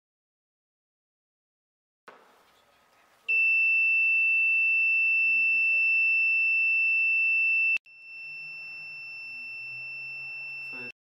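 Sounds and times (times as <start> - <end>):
electronic alarm buzzer: 3.3 - 11.0.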